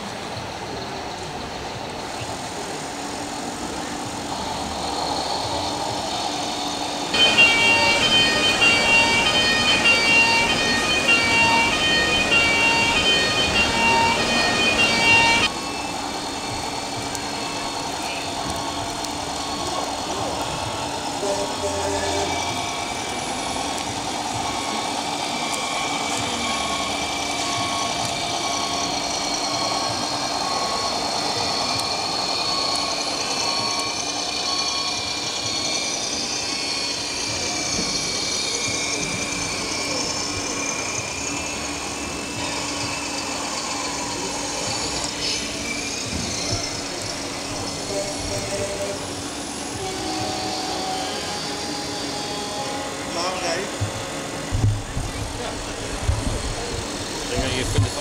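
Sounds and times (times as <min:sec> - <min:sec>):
chatter of crowd indoors: 0:00.0 - 0:58.0.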